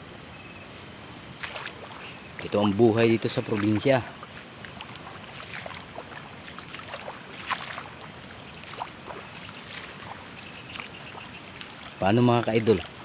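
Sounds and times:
background hiss: 0.0s - 13.0s
footsteps splashing through water: 1.4s - 13.0s.

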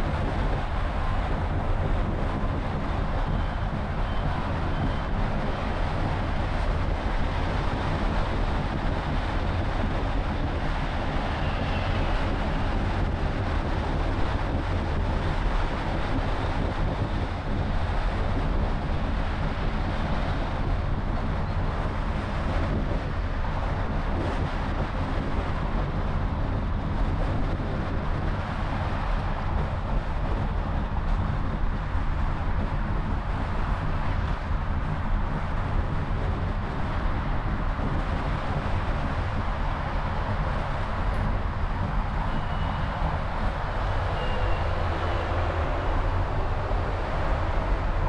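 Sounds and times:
car road and engine rumble: 0.0s - 48.0s
passing traffic: 0.0s - 48.0s.

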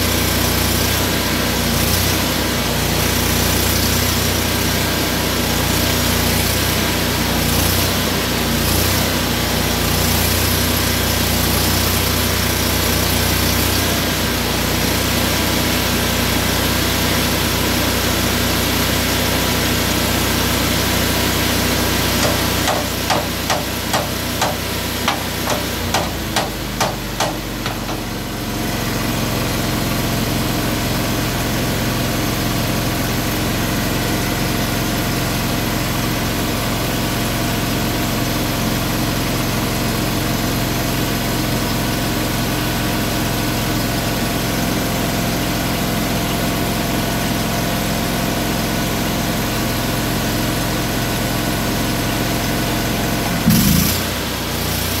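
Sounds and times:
engine running: 0.0s - 55.0s
hammer striking metal: 22.2s - 28.3s.

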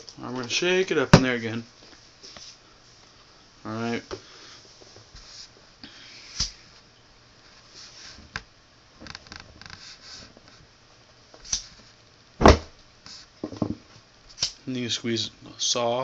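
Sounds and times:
soft scraping and handling: 9.1s - 10.7s.

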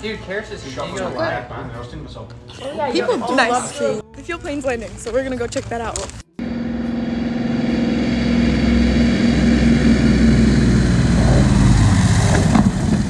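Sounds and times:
propeller plane engines: 6.4s - 13.0s.

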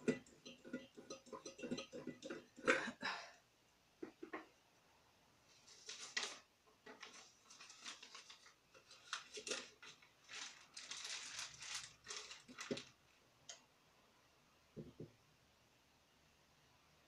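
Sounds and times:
paper and plastic bag rustling: 5.5s - 13.0s.

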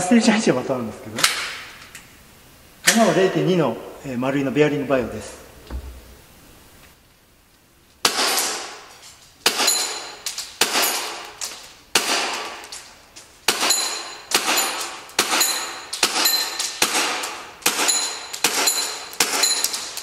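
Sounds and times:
airsoft pistol shots: 8.0s - 10.0s, 10.6s - 12.7s, 13.5s - 19.7s.

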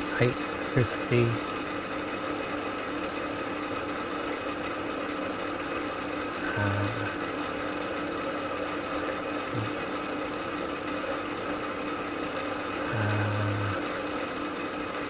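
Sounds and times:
metal lathe humming: 0.0s - 15.0s
short low hums: 6.4s - 7.3s, 9.5s - 9.9s, 12.8s - 13.8s.

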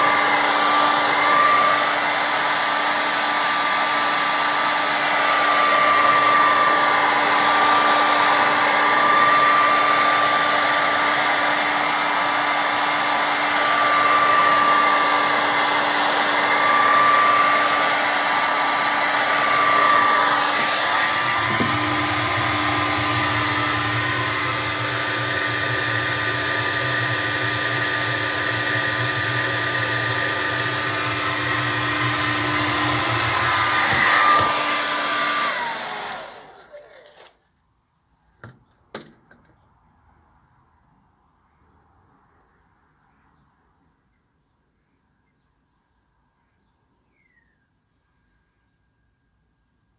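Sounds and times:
hair dryer blowing with whine: 0.0s - 37.4s.

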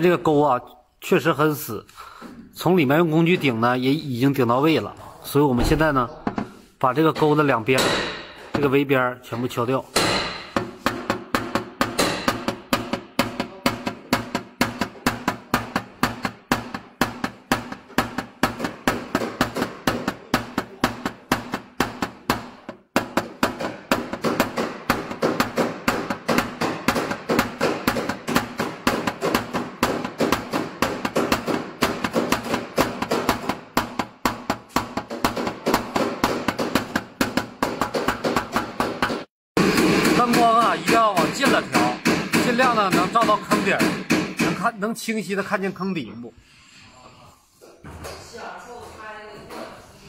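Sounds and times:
hammer tapping sheet metal: 5.6s - 8.8s, 9.8s - 44.8s.

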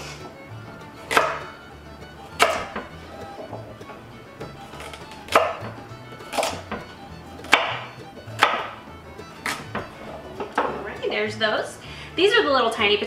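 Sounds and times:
knife chopping on wooden board: 1.0s - 1.6s, 2.3s - 3.7s, 4.6s - 8.8s, 9.4s - 10.9s.

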